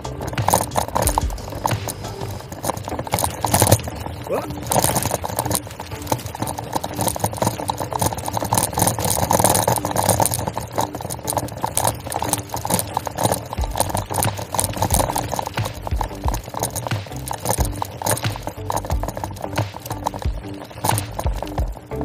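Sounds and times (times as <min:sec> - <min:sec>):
bicycle tyres crunching gravel: 0:00.0 - 0:22.0.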